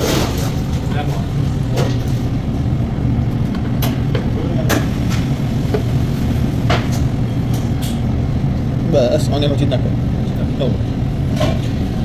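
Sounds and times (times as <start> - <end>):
low rumble of kitchen: 0.0 - 12.0.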